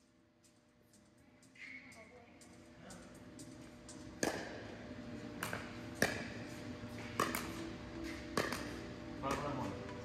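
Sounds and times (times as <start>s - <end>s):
paddles striking pickleball: 4.1s - 4.6s, 5.4s - 6.4s, 7.0s - 7.6s, 8.3s - 9.6s.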